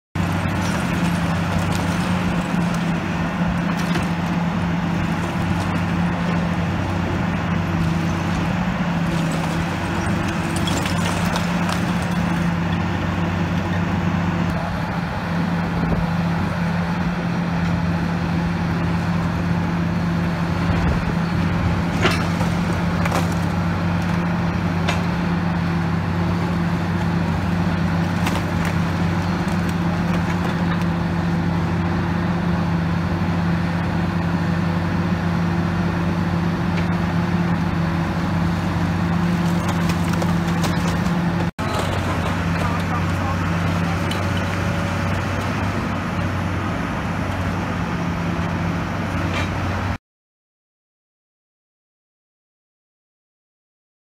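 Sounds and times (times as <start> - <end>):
diesel excavator engine running: 0.1 - 50.0
masonry breaking and debris falling: 0.2 - 6.6, 7.8 - 12.9, 21.8 - 25.3, 26.2 - 31.4, 38.9 - 45.6.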